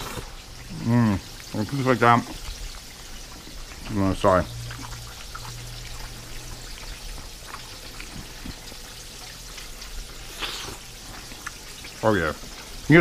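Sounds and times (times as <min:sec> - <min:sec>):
chicken deep-frying in oil: 0:00.0 - 0:13.0
faint low hum: 0:03.5 - 0:10.0.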